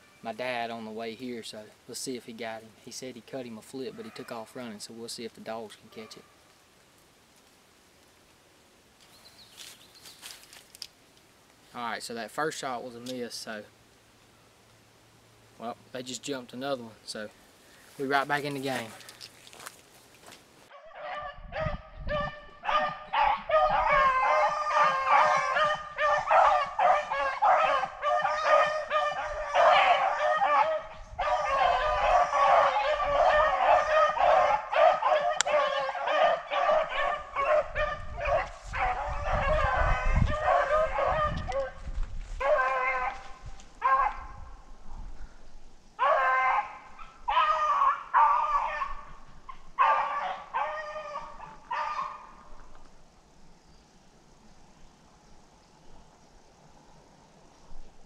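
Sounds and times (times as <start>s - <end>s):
dogs baying: 22.7s - 41.8s, 46.0s - 52.4s.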